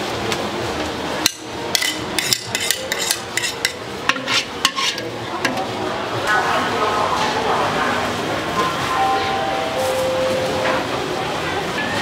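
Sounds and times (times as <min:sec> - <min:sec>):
spatula clanking and scraping wok: 0:01.3 - 0:05.6.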